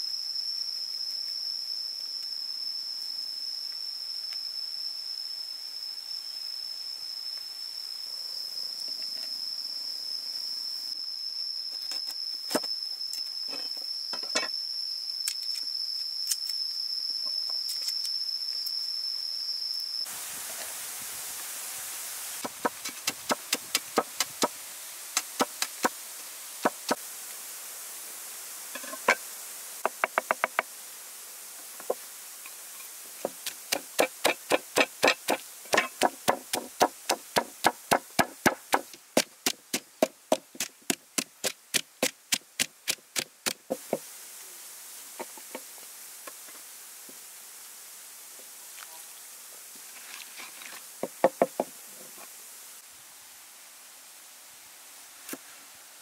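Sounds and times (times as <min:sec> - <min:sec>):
pestle pounding in a mortar: 0:33.7 - 0:43.6.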